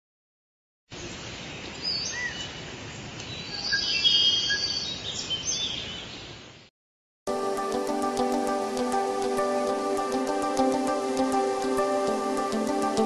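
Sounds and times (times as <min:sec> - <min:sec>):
bird calls and chirps: 0:01.0 - 0:06.4
steady background hiss: 0:07.3 - 0:13.0.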